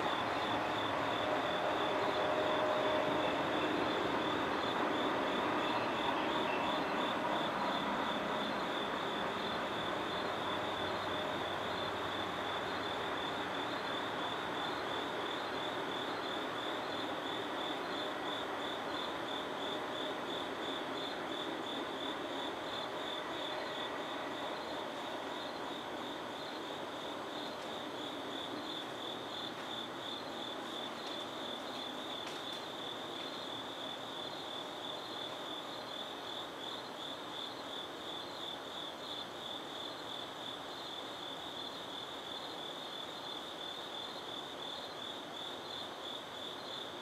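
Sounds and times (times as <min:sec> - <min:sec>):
crickets trilling: 0:00.0 - 0:47.0.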